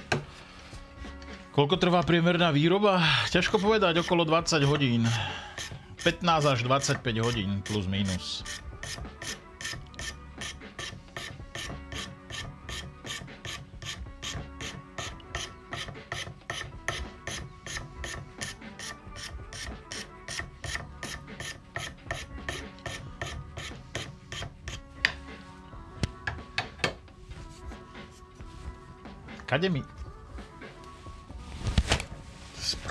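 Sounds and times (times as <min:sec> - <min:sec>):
hand file rasping wood: 0:03.3 - 0:25.2.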